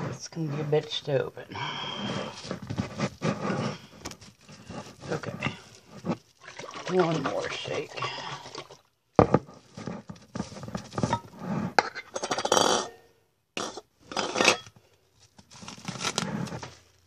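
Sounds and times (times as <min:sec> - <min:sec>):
glass jars and kitchenware clinking: 0:11.8 - 0:13.0.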